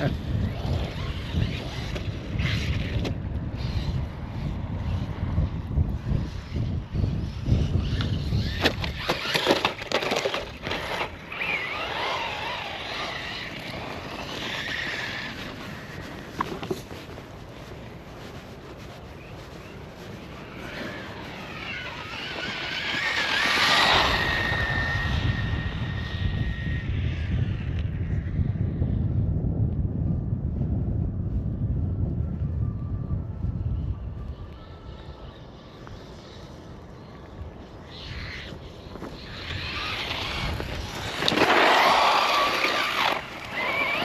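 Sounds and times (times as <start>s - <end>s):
rc truck motor whine: 0.0s - 16.7s, 19.8s - 29.0s, 33.8s - 44.0s
wind rumbling on microphone: 0.0s - 44.0s
tyres churning through dirt: 7.0s - 27.1s, 37.7s - 44.0s.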